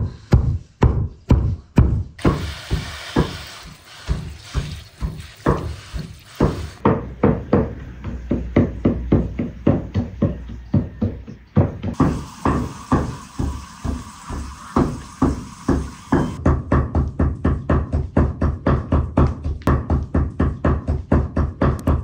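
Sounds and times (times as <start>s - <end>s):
running water splashing: 2.2s - 6.8s, 12.0s - 16.4s.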